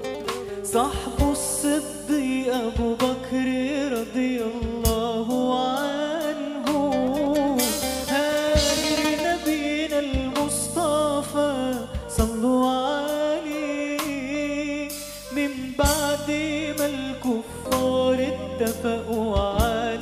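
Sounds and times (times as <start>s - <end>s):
person singing ornamented melody: 5.3s - 20.0s
sharp percussion hits: 7.6s - 10.5s.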